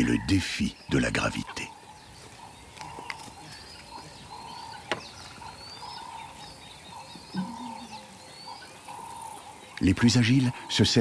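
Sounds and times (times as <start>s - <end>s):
background hiss: 0.0s - 11.0s
wild birds calling: 0.0s - 11.0s
low animal call: 2.8s - 9.6s.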